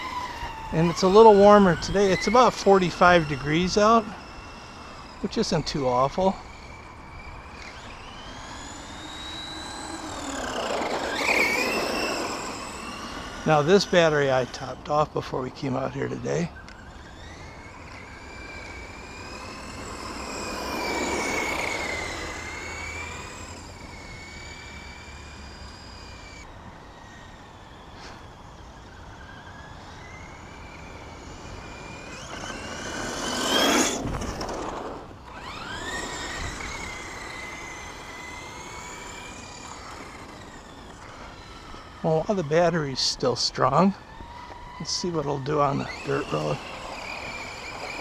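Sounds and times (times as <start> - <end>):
electric toy truck motor whining: 0.0 - 48.0.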